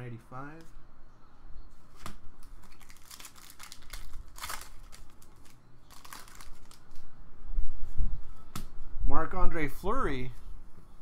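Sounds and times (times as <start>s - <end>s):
trading cards being shuffled: 2.0s - 7.0s.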